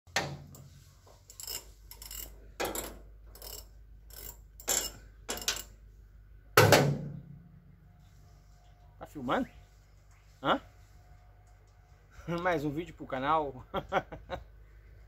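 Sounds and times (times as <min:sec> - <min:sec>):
hand tools clanking on metal: 0:01.3 - 0:05.7
loud clank and thud: 0:06.6 - 0:07.2.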